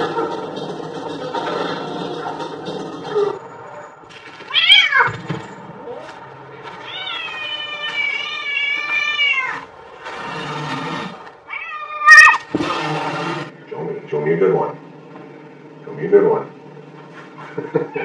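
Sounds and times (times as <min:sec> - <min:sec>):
cat meowing: 0:04.5 - 0:05.1, 0:06.8 - 0:09.7, 0:11.5 - 0:12.5.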